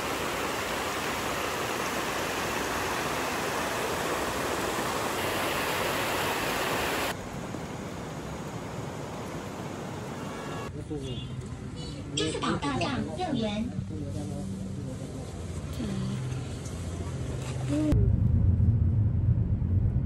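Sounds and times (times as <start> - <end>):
water rushing over stones: 0.0 - 10.7.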